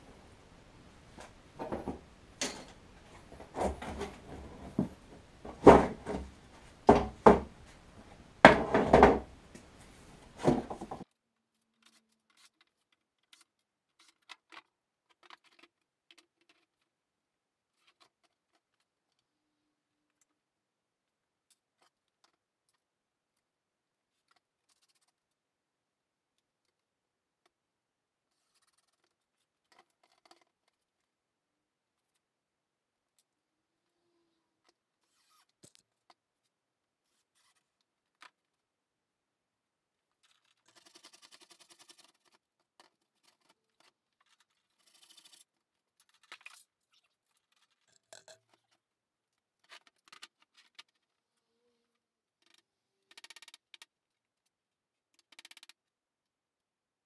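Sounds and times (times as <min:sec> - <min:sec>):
wooden knocks and thuds: 0:01.6 - 0:02.0, 0:03.2 - 0:07.6, 0:08.4 - 0:09.3, 0:10.4 - 0:11.0.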